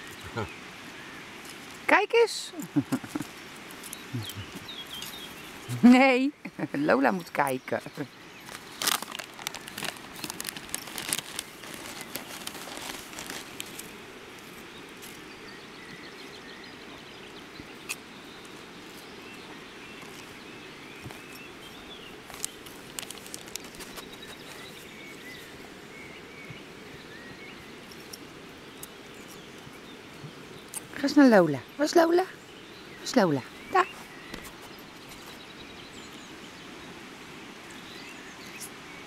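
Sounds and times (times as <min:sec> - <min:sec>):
open-air background: 0:00.0 - 0:39.0
faint bird chirps: 0:03.0 - 0:08.6
crinkling and clicking: 0:08.4 - 0:13.9, 0:22.3 - 0:24.7.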